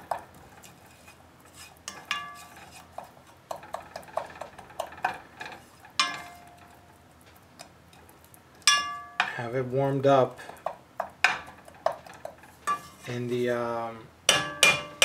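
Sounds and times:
wooden spoon scraping a metal pan: 0:00.0 - 0:06.7, 0:10.4 - 0:13.6
garlic sizzling in oil: 0:00.0 - 0:09.3, 0:10.0 - 0:13.5
metal pan ringing: 0:06.0 - 0:06.6, 0:08.7 - 0:09.4, 0:14.3 - 0:15.0.

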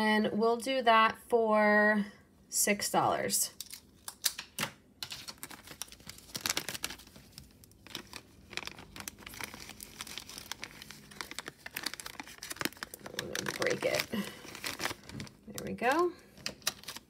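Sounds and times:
plastic bag crinkling: 0:05.0 - 0:17.0.

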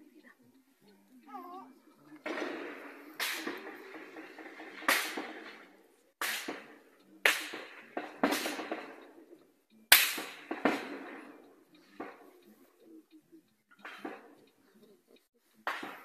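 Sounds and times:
gunshots with echo: 0:02.2 - 0:12.4, 0:15.6 - 0:16.0.

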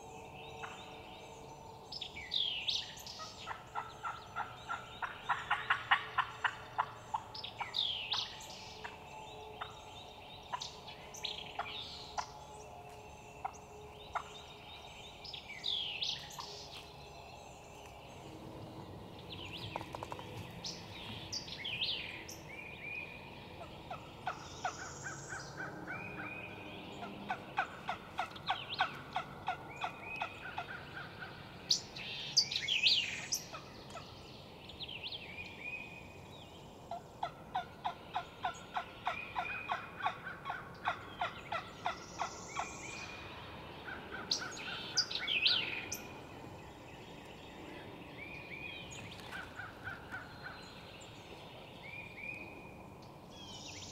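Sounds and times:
songbirds chirping: 0:00.0 - 0:53.9
wild turkey calling: 0:02.7 - 0:09.0, 0:10.5 - 0:12.6, 0:13.4 - 0:17.0, 0:23.6 - 0:34.1, 0:36.9 - 0:46.1, 0:49.1 - 0:51.2.

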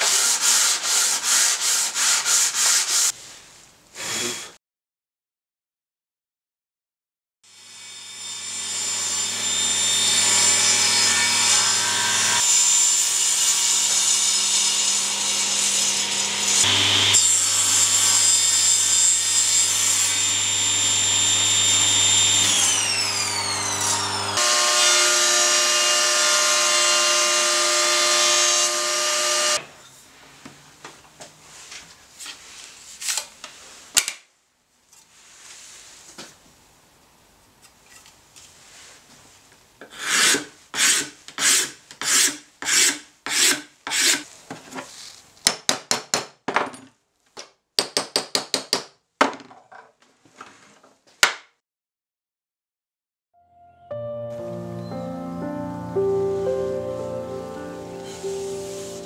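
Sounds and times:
table saw motor whine: 0:07.5 - 0:13.0, 0:13.8 - 0:29.6.

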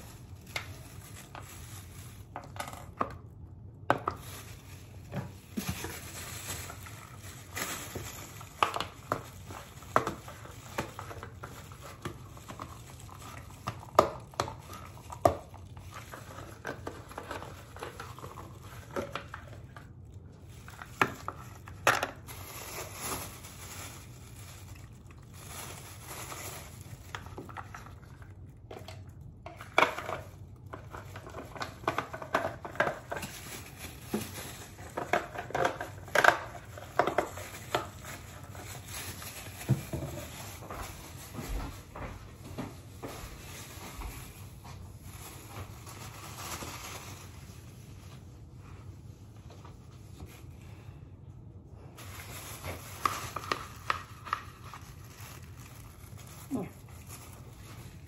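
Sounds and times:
plastic gloves crinkling: 0:00.0 - 0:58.0
plastic bottle and bowl clicking: 0:07.6 - 0:19.9, 0:28.6 - 0:38.6.

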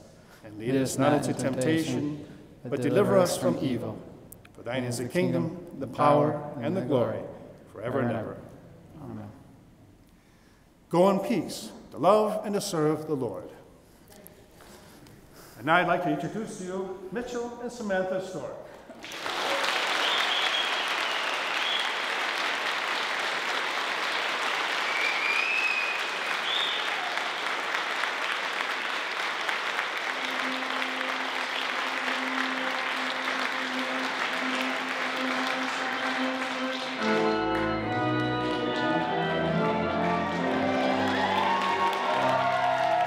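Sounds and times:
crowd applauding and cheering: 0:18.9 - 0:43.0
music: 0:29.4 - 0:43.0.

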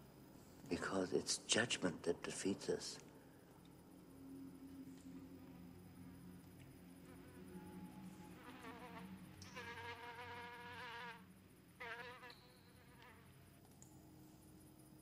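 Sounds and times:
low steady hum: 0:00.0 - 0:15.0
insect buzzing: 0:03.2 - 0:13.6.

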